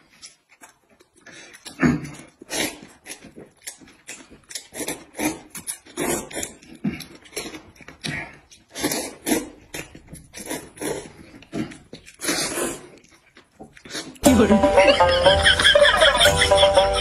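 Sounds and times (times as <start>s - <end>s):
chewing: 0.0s - 14.2s
people slurping noodles: 1.3s - 3.2s, 4.6s - 13.0s.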